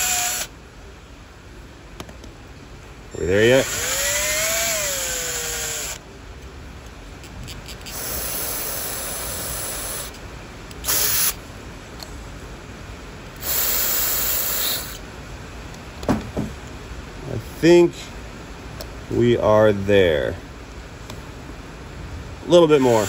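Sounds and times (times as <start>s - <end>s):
drill turning: 0.0s - 0.5s, 3.4s - 6.0s, 7.8s - 10.1s, 10.8s - 11.4s, 13.4s - 15.0s, 22.8s - 23.0s.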